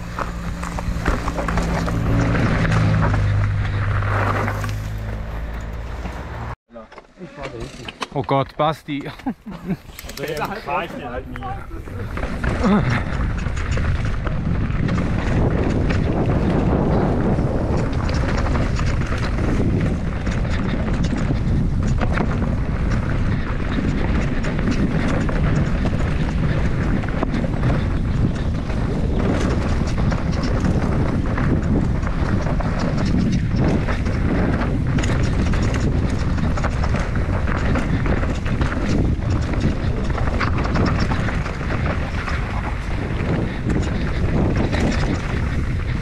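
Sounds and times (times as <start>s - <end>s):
wind rushing over microphone: 0.0s - 6.6s, 9.6s - 46.0s
bike chain and suspension clatter: 0.0s - 46.0s
tyres running over dirt: 0.0s - 46.0s.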